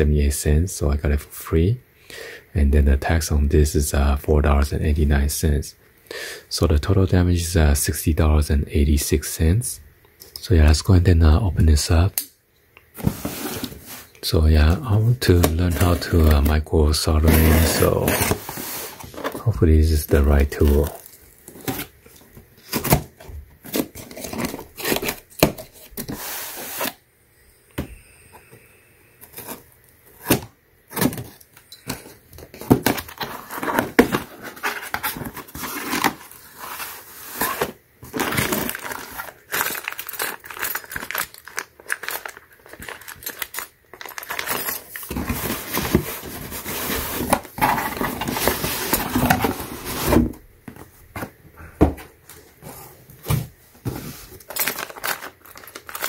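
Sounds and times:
plastic rustling: 15.1s - 26.9s, 30.9s - 51.3s, 52.6s - 56.0s
cardboard flaps scraping and tearing: 17.2s - 19.4s.

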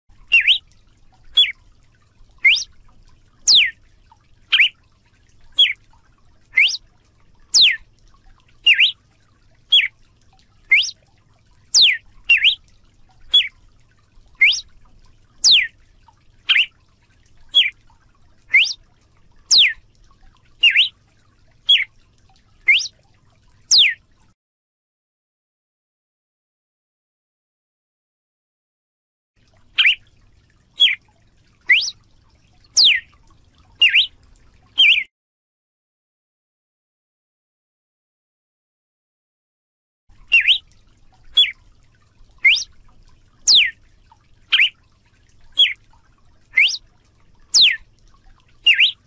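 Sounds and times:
bird singing whistled notes: 0.3s - 0.6s, 2.4s - 2.7s, 3.5s - 3.7s, 4.5s - 4.8s, 5.6s - 5.8s, 6.6s - 6.8s, 7.5s - 7.8s, 8.6s - 9.0s, 9.7s - 9.9s, 10.7s - 11.0s, 11.8s - 12.6s, 13.3s - 13.5s, 14.4s - 14.7s, 15.4s - 15.7s, 16.5s - 16.7s, 17.5s - 17.7s, 18.5s - 18.8s, 19.5s - 19.8s, 20.6s - 20.9s, 21.7s - 21.9s, 22.7s - 22.9s, 23.7s - 24.0s, 29.8s - 30.0s, 30.8s - 31.0s, 31.7s - 32.0s, 32.8s - 33.1s, 33.8s - 34.1s, 34.8s - 35.1s, 40.3s - 40.6s, 42.4s - 42.7s, 43.5s - 43.7s, 44.5s - 44.8s, 45.6s - 45.8s, 46.6s - 46.8s, 47.5s - 47.8s, 48.7s - 49.0s.

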